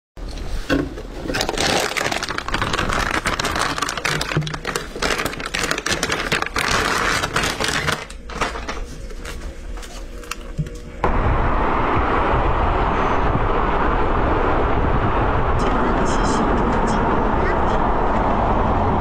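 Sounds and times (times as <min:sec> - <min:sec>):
crinkling and rustling handling noise: 0:00.2 - 0:11.0.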